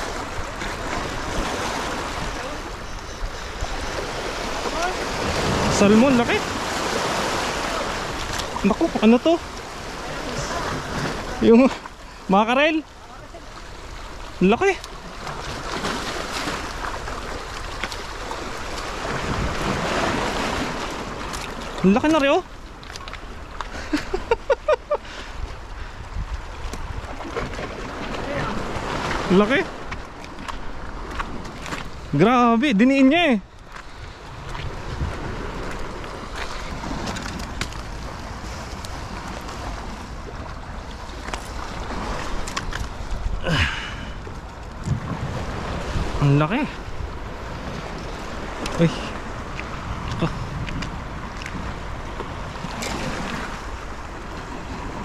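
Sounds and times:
water splashing over rocks: 3.7s - 24.3s, 47.7s - 55.0s
wind buffeting microphone: 25.2s - 32.2s, 33.9s - 55.0s.

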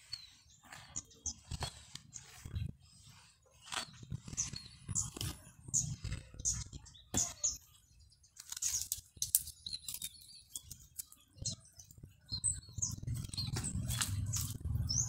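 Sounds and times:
bird chirps: 0.0s - 15.0s
hands rustling plant fronds: 13.1s - 15.0s.

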